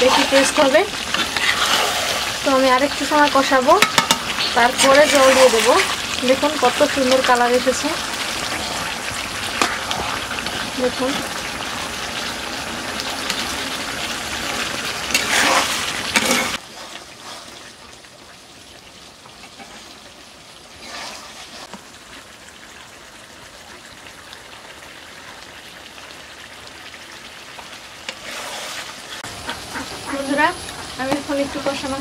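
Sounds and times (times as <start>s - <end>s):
metal spatula scraping: 0.0s - 2.4s, 3.8s - 6.0s, 15.1s - 17.7s, 19.4s - 20.0s, 20.8s - 21.8s, 28.1s - 30.0s
chicken sizzling in a pan: 0.0s - 32.0s.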